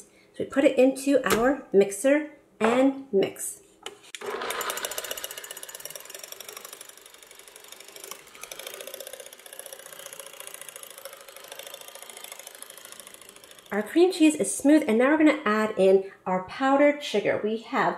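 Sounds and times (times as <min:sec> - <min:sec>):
electric mixer whirring and rattling: 0:04.2 - 0:14.4.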